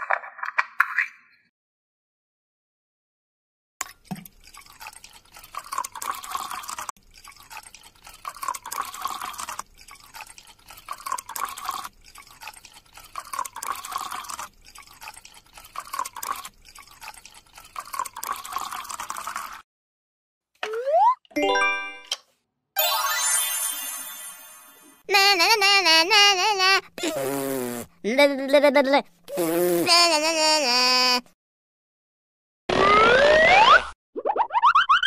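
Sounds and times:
liquid pouring and dripping: 3.8 - 19.6.

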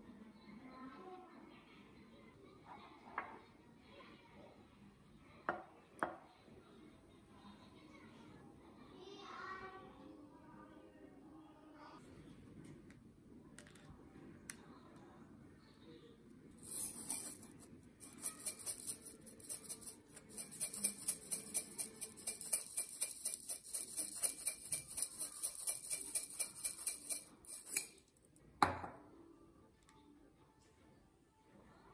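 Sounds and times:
tableware clinking: 16.6 - 29.0.

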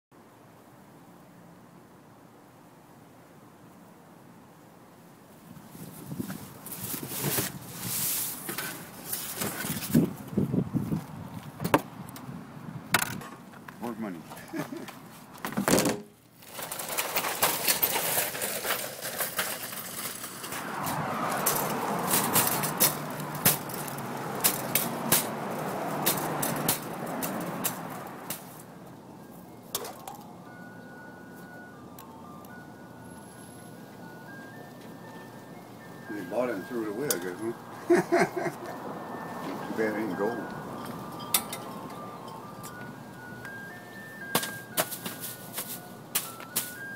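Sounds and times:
knocks and clatters in bin: 15.5 - 16.1
shopping cart wheels rumbling: 16.4 - 28.2
rustling of trash bags: 16.4 - 28.7
ice cream truck jingle: 16.7 - 46.9
metal basket rattling: 21.3 - 28.5.

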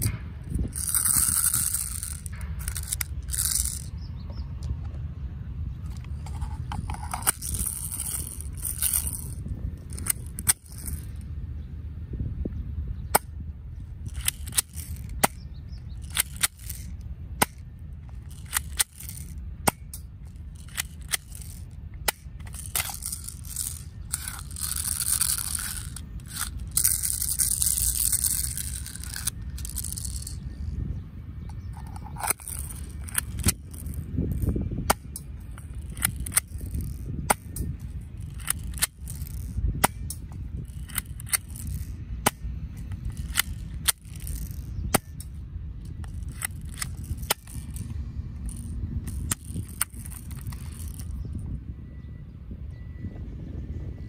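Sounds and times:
handling noise: 5.7 - 11.2, 13.1 - 30.8, 31.4 - 51.4.

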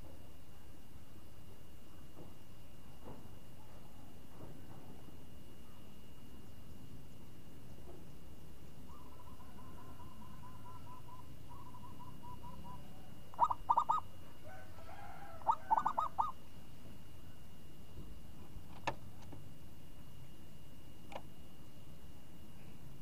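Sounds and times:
dove cooing: 8.9 - 16.4.

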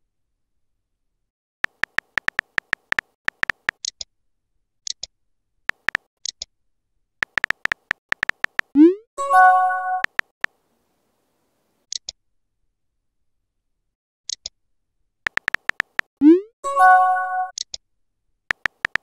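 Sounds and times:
keyboard key clicks: 1.6 - 4.0, 5.7 - 6.4, 7.2 - 8.7, 10.0 - 10.3, 15.3 - 16.1, 18.5 - 19.0
chime of stacked tones: 8.8 - 10.1, 16.2 - 17.5.

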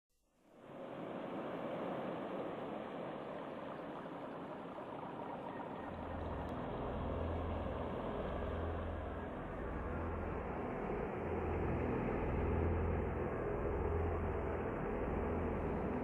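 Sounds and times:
steady rushing noise: 0.4 - 16.0
low droning rumble: 5.8 - 16.0.

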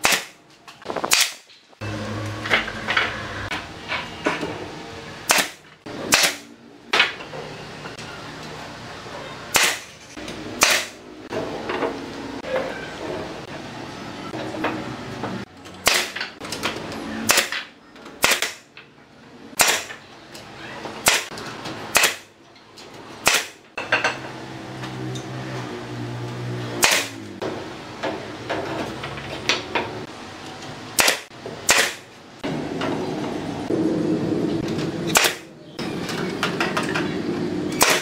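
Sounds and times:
nail gun firing: 0.0 - 1.5, 5.3 - 6.5, 9.5 - 9.9, 10.6 - 11.0, 15.8 - 16.2, 17.2 - 18.7, 19.6 - 20.0, 21.0 - 21.3, 21.9 - 22.3, 23.2 - 23.6, 26.8 - 27.2, 31.0 - 32.1, 35.1 - 35.5, 37.8 - 38.0.

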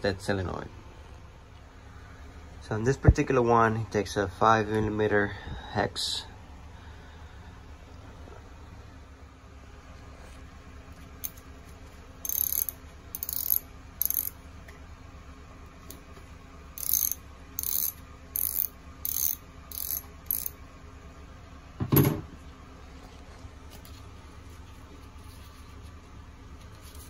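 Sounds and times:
socket ratchet clicking: 12.2 - 14.4, 16.8 - 20.6.

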